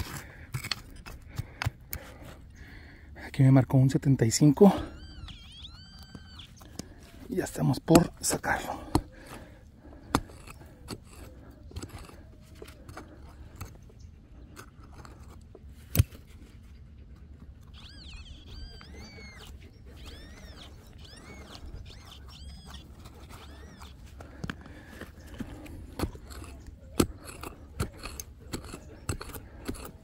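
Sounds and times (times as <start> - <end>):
digging tool scraping soil: 0.0 - 2.3, 7.3 - 16.8, 18.4 - 30.0
animal high calls: 4.6 - 7.0, 17.7 - 24.4.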